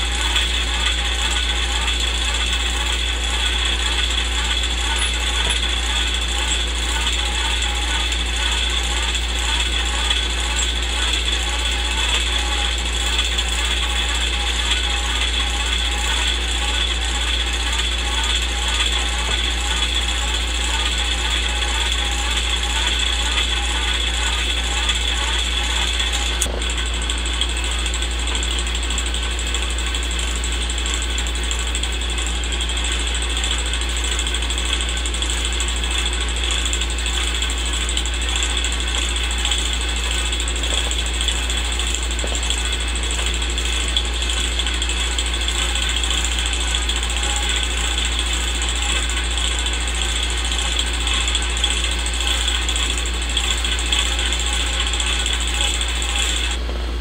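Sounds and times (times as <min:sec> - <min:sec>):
low hum: 0:00.0 - 0:29.7
film projector clatter: 0:00.0 - 0:56.6.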